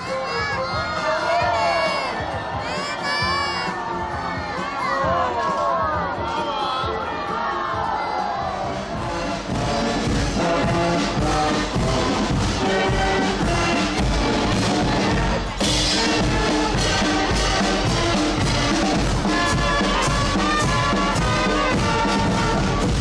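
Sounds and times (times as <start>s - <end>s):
bass drum beat: 8.3s - 23.0s
marching brass band playing: 8.4s - 23.0s.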